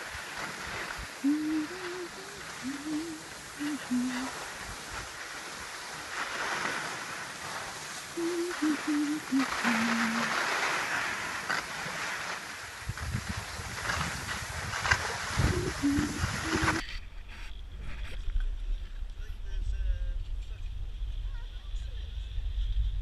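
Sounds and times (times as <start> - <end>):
skis scraping on snow: 0.0 - 16.8
person humming: 1.2 - 4.4, 8.2 - 10.3, 15.4 - 16.8.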